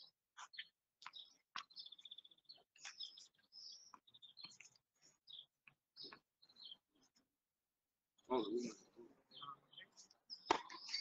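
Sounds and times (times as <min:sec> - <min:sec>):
bird trill: 0:00.0 - 0:07.0
songbird chirping: 0:00.0 - 0:11.0.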